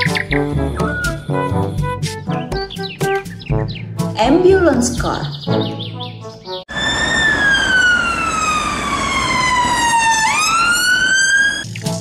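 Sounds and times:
children's music: 0.0s - 6.7s
ambulance siren wailing: 6.7s - 11.6s
road noise: 6.7s - 12.0s.

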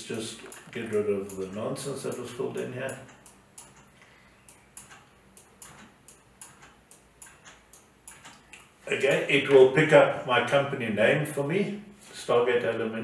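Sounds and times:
computer keyboard and mouse clicks: 0.3s - 8.7s.

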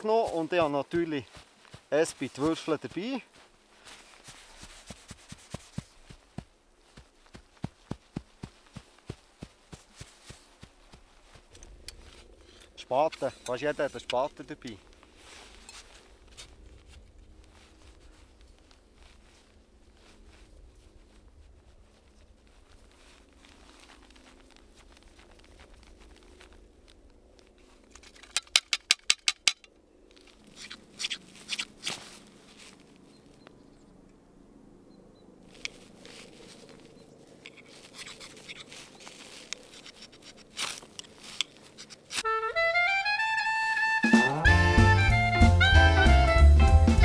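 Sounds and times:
knife scraping ferro rod: 37.5s - 38.7s
jazz music with saxophone: 42.2s - 47.0s.

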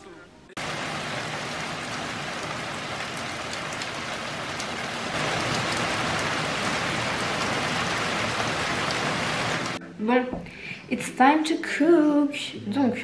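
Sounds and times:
rain splashing on asphalt: 0.6s - 9.8s.

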